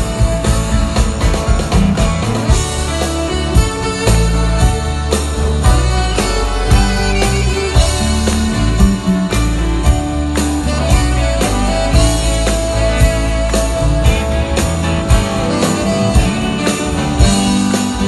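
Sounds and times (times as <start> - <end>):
drums: 0.0 - 18.0
electric guitar: 0.0 - 18.0
live rock band playing: 0.0 - 18.0
saxophone: 0.0 - 18.0.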